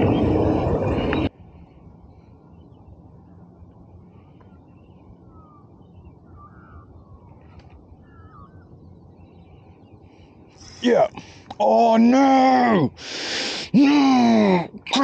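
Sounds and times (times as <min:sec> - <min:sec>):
faint bird chirps: 0:00.0 - 0:11.4
low rumble: 0:00.0 - 0:11.4.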